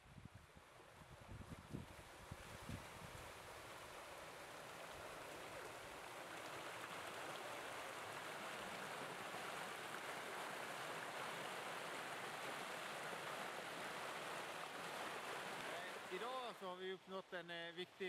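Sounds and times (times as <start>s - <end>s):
water rushing over stones: 3.2s - 16.6s.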